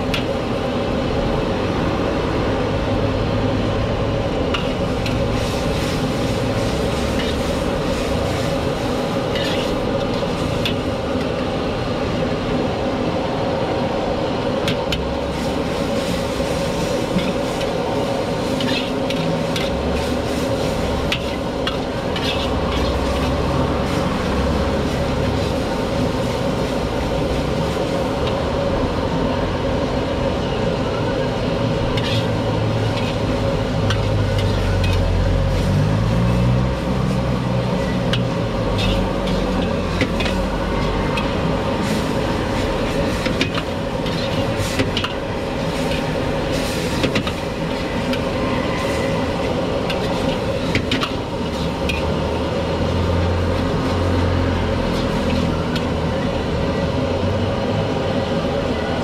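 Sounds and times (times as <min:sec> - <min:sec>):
gas burner rushing: 0:04.2 - 0:12.6, 0:31.4 - 0:53.8
metal spatula scraping wok: 0:04.5 - 0:11.0, 0:14.9 - 0:28.3, 0:31.9 - 0:52.8, 0:54.8 - 0:55.9.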